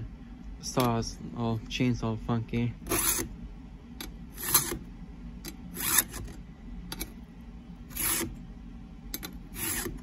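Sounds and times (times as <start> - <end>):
file rasping on chain tooth: 2.9 - 3.3, 4.4 - 4.8, 5.7 - 6.2, 7.9 - 8.4, 9.5 - 10.0.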